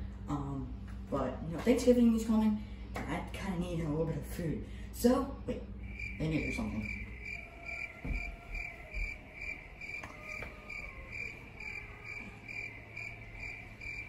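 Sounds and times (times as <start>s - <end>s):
cricket chirping: 5.8s - 14.0s.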